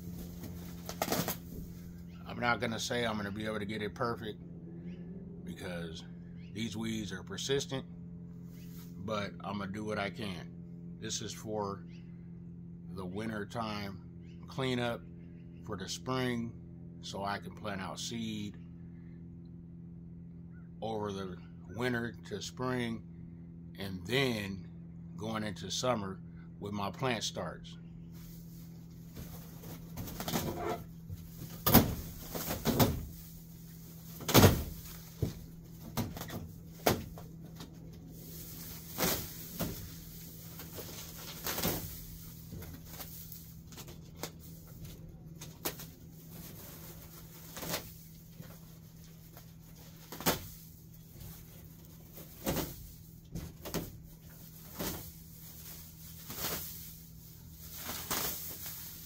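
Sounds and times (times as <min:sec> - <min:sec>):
low hum: 0:00.0 - 0:59.0
weeds rustling and tearing: 0:28.1 - 0:59.0.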